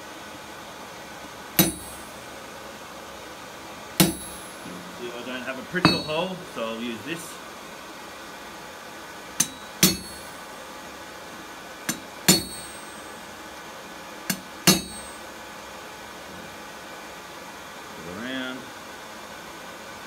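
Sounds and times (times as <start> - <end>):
hammer striking metal punch: 1.6 - 2.2, 4.0 - 4.8, 5.8 - 6.4, 9.4 - 10.4, 11.9 - 13.1, 14.3 - 15.2
metallic ring: 1.6 - 2.2, 4.0 - 4.8, 5.8 - 6.4, 9.4 - 10.5, 11.9 - 13.2, 14.3 - 15.2.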